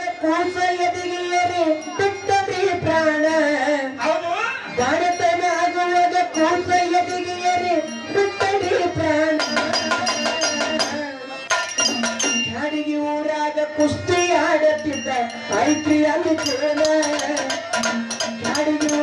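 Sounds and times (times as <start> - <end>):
man singing into a microphone: 0.0 - 11.4, 12.4 - 19.0
small hand cymbals: 4.8 - 12.6, 13.8 - 19.0
hand drums: 8.4 - 12.7, 13.8 - 19.0.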